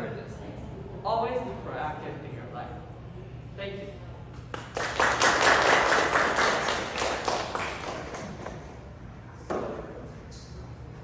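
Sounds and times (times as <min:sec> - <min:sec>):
audience applause: 0:04.6 - 0:08.7.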